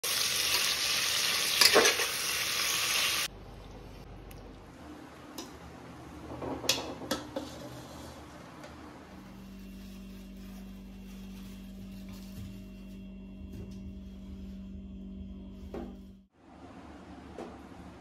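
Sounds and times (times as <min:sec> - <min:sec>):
food sizzling in hot oil: 0:00.0 - 0:03.3
utensil scraping pan: 0:06.7 - 0:08.4.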